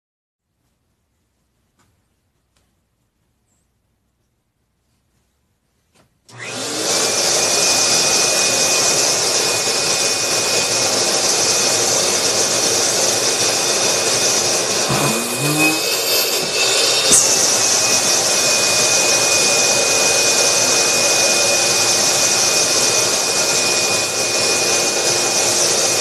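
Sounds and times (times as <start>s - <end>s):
vacuum cleaner running: 6.3s - 26.0s.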